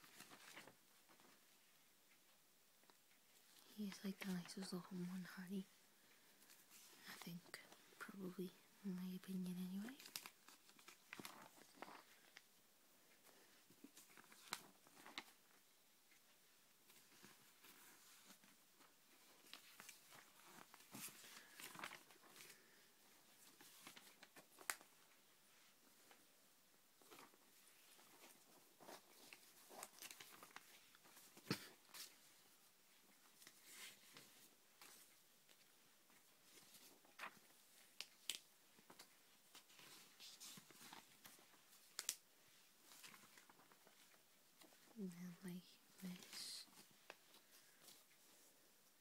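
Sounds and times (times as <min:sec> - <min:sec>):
magazine pages rustling: 0:00.0 - 0:01.4, 0:09.8 - 0:12.5, 0:13.2 - 0:16.2, 0:16.9 - 0:25.2, 0:27.0 - 0:45.0, 0:46.0 - 0:49.0.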